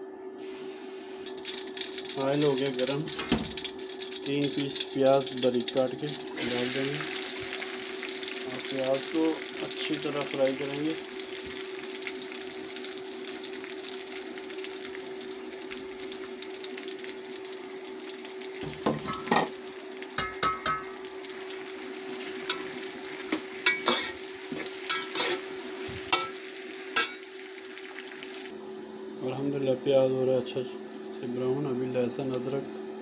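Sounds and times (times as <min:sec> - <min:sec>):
onions sizzling in oil: 0:00.4 - 0:29.2
metal spoon scraping pot: 0:23.7 - 0:25.5.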